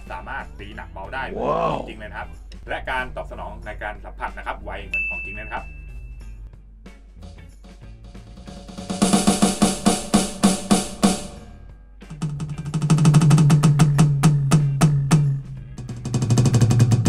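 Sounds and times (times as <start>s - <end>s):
electronic snare drum roll: 8.1s - 11.4s, 12.1s - 17.0s
low tom roll: 12.2s - 17.0s.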